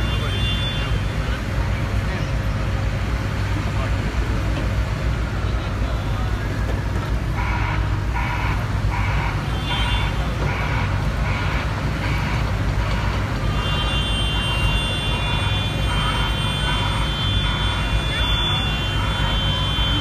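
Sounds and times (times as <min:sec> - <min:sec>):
diesel engine running: 0:00.0 - 0:20.0
warning alarm beeping: 0:13.9 - 0:20.0.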